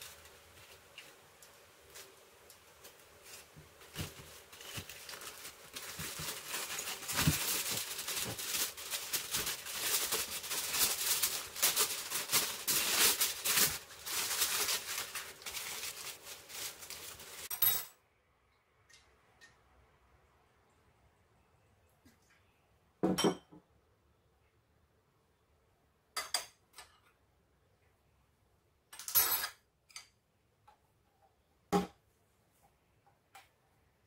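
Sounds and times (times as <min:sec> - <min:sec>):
aluminium foil crinkling: 0:00.0 - 0:17.5.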